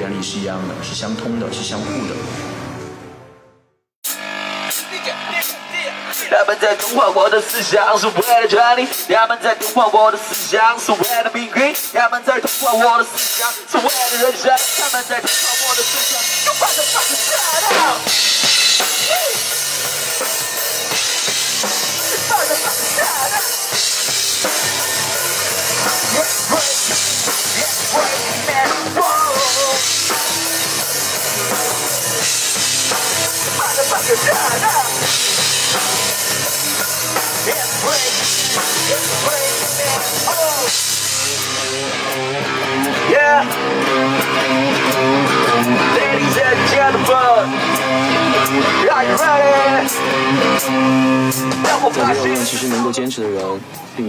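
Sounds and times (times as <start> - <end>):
electric guitar: 4.0 - 54.0
rock band playing rap-metal: 4.0 - 54.0
crashing cymbals: 13.3 - 45.8.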